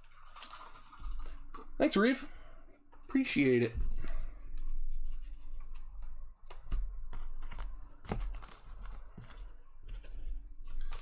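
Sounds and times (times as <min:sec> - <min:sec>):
cards and wrappers rustling: 0:05.2 - 0:11.0.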